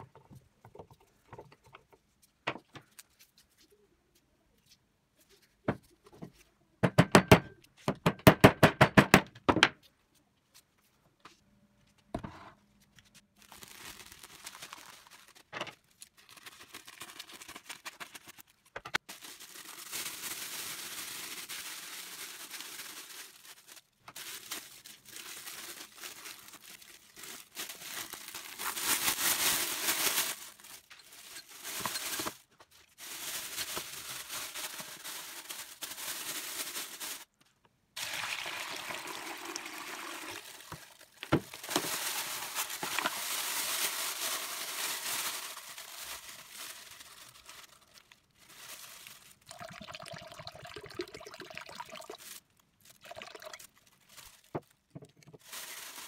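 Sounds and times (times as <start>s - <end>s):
plastic bag crinkling: 13.2s - 37.4s, 38.0s - 56.0s.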